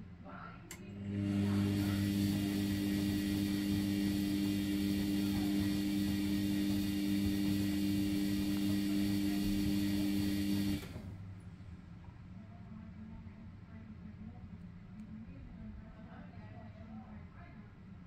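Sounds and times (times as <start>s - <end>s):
washing machine motor hum: 0.7s - 11.5s.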